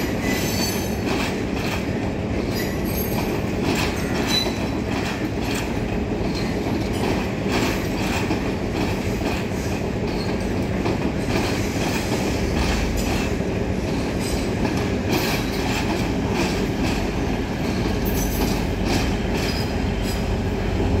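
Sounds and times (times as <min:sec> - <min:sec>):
train carriages rumbling past: 0:00.0 - 0:21.0
wheels clacking over rail joints: 0:00.0 - 0:21.0.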